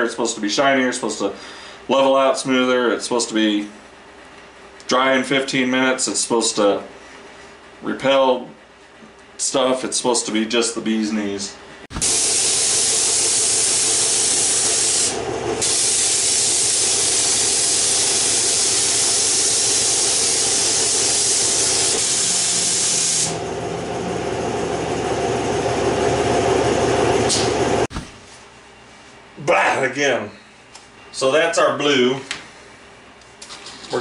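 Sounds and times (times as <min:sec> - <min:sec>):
spray gun hissing: 0:11.9 - 0:23.4.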